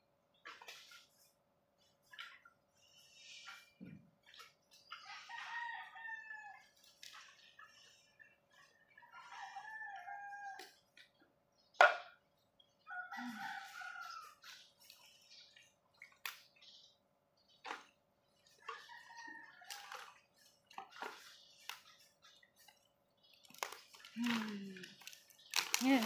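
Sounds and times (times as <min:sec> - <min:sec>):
roosters crowing: 0:05.0 - 0:06.8, 0:09.0 - 0:10.6, 0:12.9 - 0:14.5.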